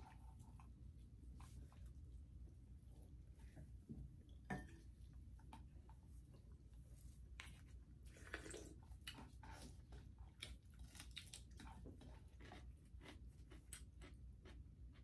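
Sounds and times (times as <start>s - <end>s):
chewing and biting food: 7.4s - 15.0s.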